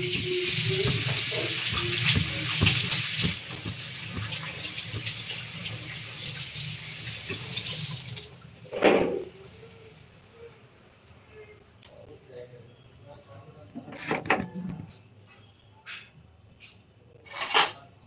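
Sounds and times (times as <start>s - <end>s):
tap water running into sink: 0.0s - 8.3s.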